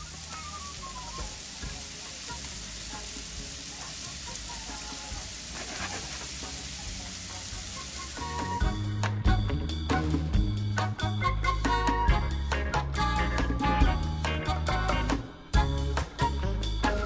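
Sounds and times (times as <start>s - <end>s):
food sizzling in oil: 0.0s - 8.9s
quiet background music: 0.0s - 17.0s.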